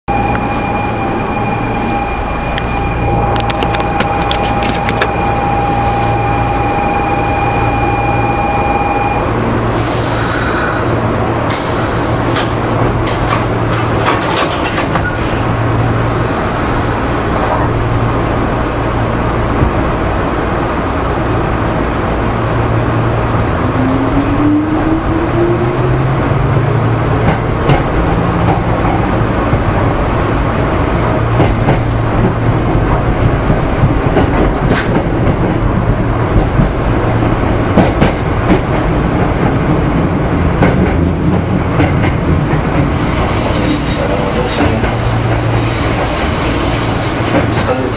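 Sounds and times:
electric train rumble and hum: 0.0s - 47.9s
sharp clicks from track: 34.2s - 35.0s.

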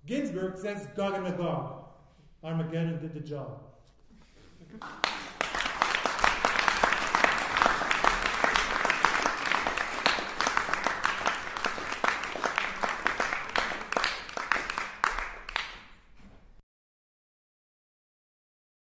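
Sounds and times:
audience applauding: 4.7s - 16.1s.

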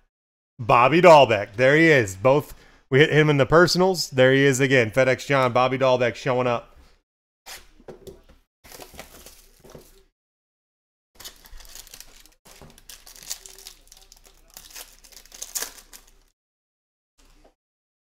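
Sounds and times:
foil wrapper crinkling and tearing: 8.7s - 10.1s, 11.2s - 16.3s.

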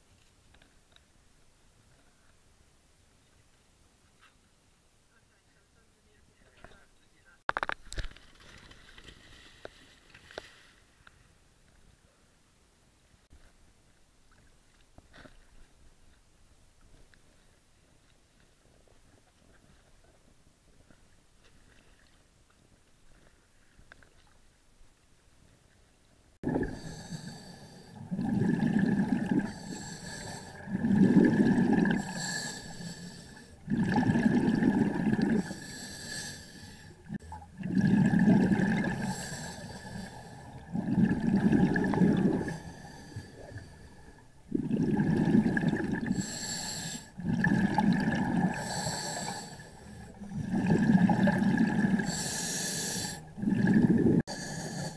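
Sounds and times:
exhaled bubbles gurgling: 26.4s - 54.8s
diver breathing through regulator: 26.5s - 54.9s.

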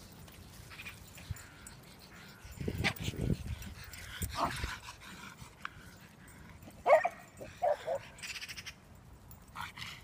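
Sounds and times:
dog barking: 6.8s - 8.1s.

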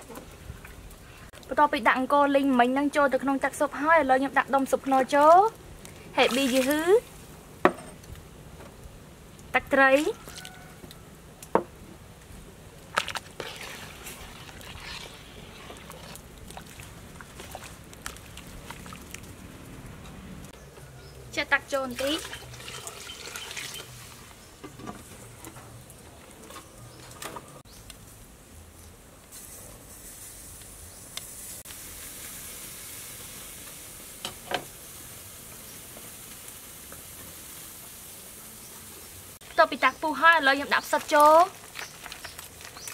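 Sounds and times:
broth bubbling: 12.9s - 19.5s
steady high hiss: 27.7s - 40.8s.

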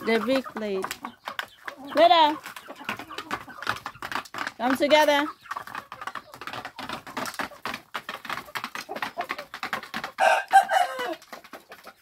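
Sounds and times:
chickens pecking grain on plate: 0.0s - 12.0s
chicken call: 10.2s - 11.2s.

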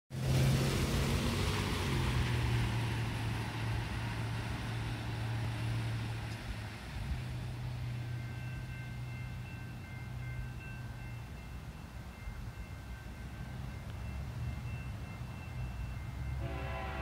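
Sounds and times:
low engine hum: 0.1s - 17.0s.

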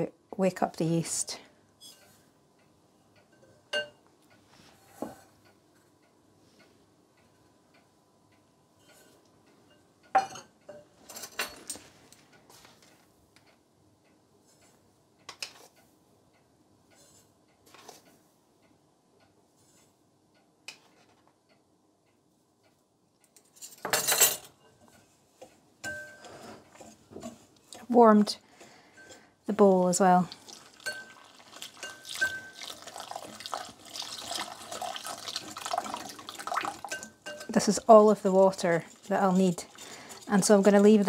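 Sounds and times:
utensils clinking against ceramic bowl: 30.6s - 41.0s.

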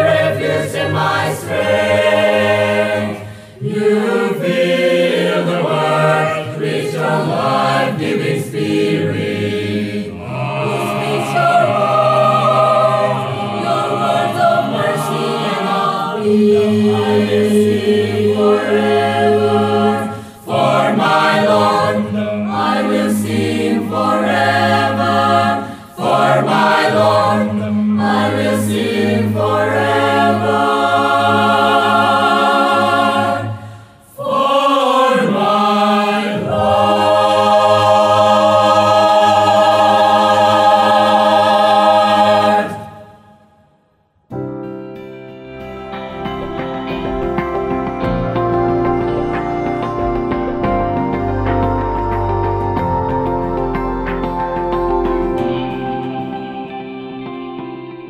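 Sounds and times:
mixed choir singing a hymn: 0.0s - 43.7s.

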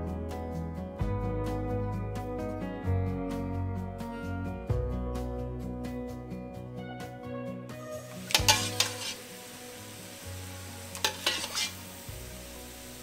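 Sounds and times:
pasta sizzling in a skillet: 8.0s - 13.0s
metal spoon scraping a pan: 8.3s - 9.3s, 10.9s - 12.0s.

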